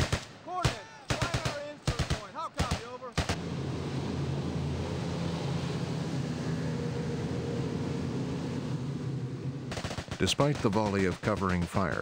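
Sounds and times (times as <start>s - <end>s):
boat engines droning: 3.4s - 10.9s.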